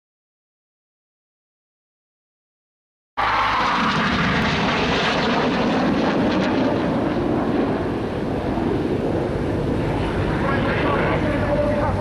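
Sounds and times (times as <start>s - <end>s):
aircraft engine drone: 3.2s - 12.0s.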